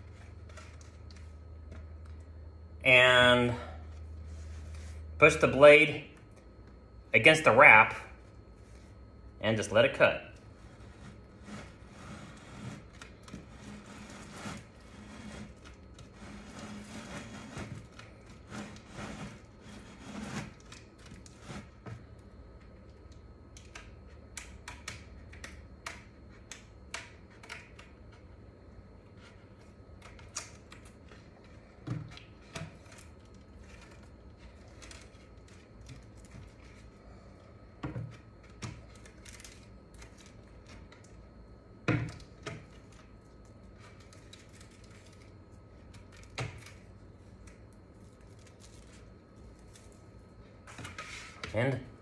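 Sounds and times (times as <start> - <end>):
razor blade trimming vinyl: 10.9 - 21.8.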